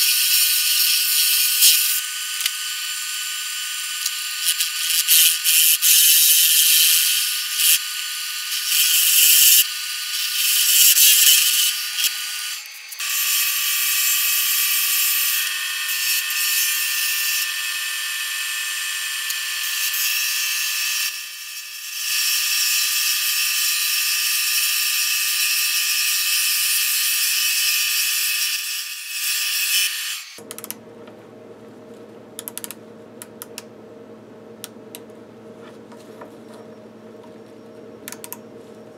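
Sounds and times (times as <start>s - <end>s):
low lathe hum: 30.4s - 38.9s.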